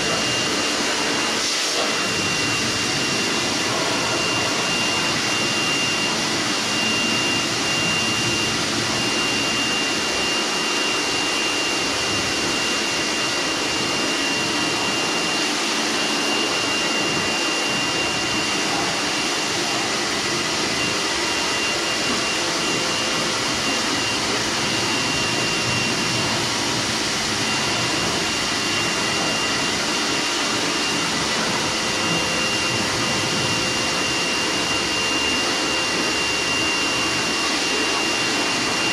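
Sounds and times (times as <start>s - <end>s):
water jet spraying: 0.0s - 5.8s
pressure washer whine: 0.0s - 38.9s.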